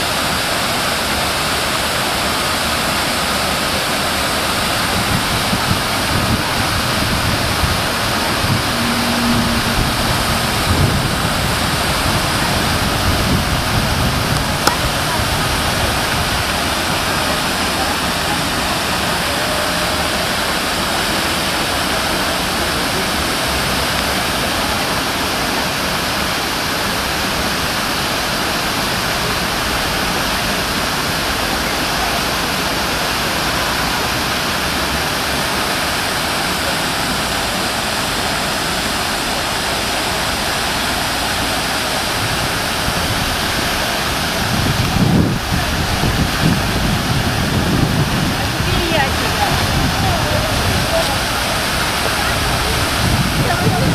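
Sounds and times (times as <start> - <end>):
fountain water splashing: 0.0 - 53.9
low rumble: 5.0 - 17.0.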